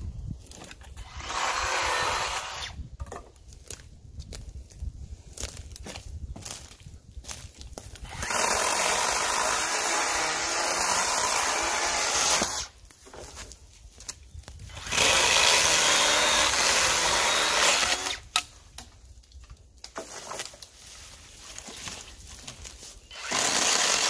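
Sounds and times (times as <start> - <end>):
chainsaw cutting wood: 1.0 - 2.8, 8.0 - 12.8, 14.7 - 18.5, 23.1 - 24.0.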